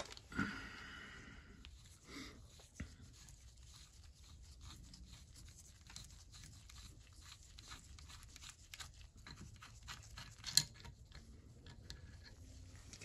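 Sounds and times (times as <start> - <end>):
metal ring unscrewing scratches: 5.7 - 13.0.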